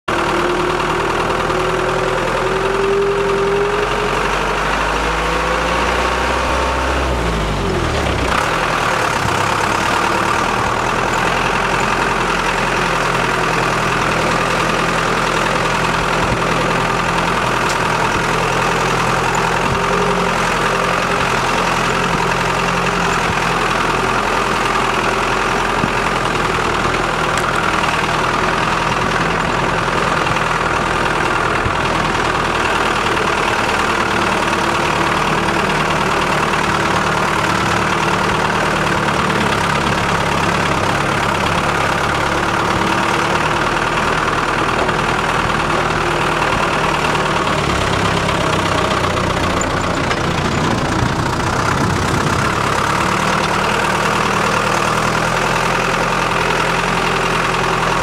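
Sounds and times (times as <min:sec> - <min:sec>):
vehicle engine running: 0:00.0 - 0:58.0.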